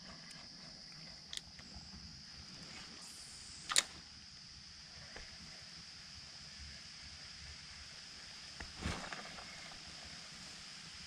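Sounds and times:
faint steady high hiss: 0.0 - 11.0
fishing reel click: 3.7 - 4.0.

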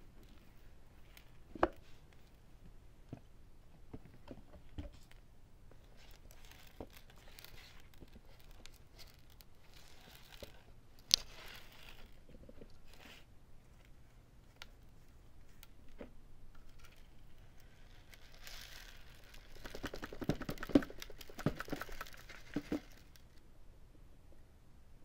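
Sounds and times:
paper debris rustling and crinkling: 17.6 - 23.2.

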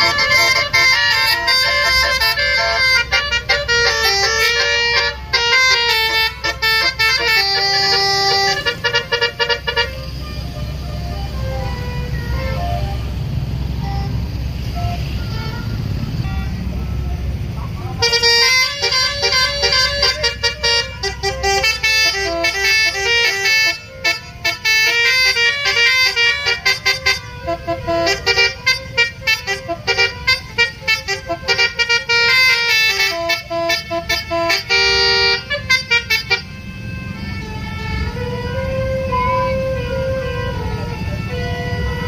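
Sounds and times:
bus horn playing fast tune: 0.0 - 42.0
road traffic rumble: 0.0 - 42.0.

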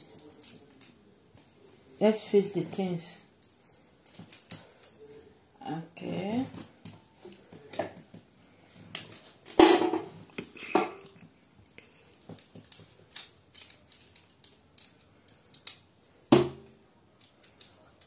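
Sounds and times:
parts clattering: 8.8 - 18.0.

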